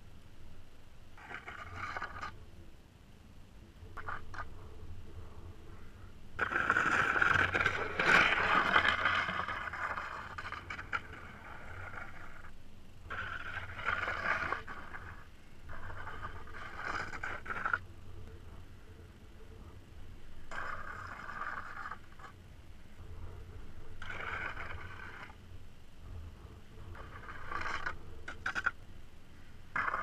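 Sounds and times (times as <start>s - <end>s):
skateboard scraping on gravel: 1.2s - 2.4s, 6.4s - 12.5s, 13.1s - 17.8s, 20.5s - 22.4s, 24.0s - 25.4s, 27.0s - 28.8s, 29.8s - 30.0s.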